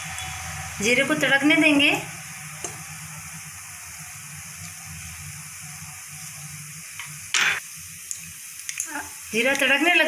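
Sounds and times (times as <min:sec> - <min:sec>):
spices sizzling in hot oil: 0:00.0 - 0:10.0.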